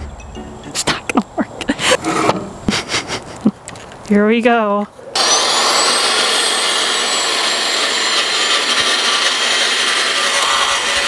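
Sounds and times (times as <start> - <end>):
tiller scraping dirt and grass: 1.8 - 2.9, 5.2 - 11.0
high whine rising in pitch: 5.2 - 11.0.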